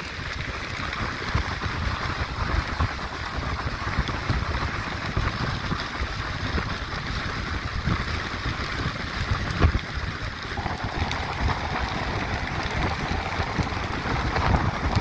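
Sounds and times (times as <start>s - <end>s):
rushing water: 0.0s - 15.0s
wind noise: 0.0s - 15.0s
boat engine rumble: 10.3s - 15.0s.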